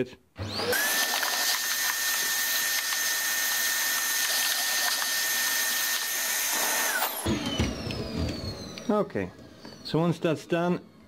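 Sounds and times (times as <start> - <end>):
vacuum cleaner whining: 0.4 - 11.0.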